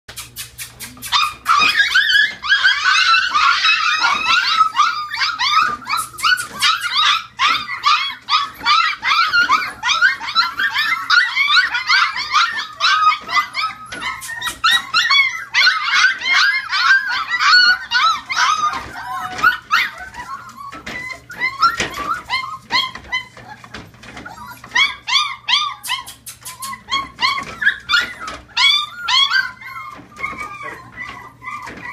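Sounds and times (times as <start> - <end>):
puppies yipping and whining: 0.1 - 31.9.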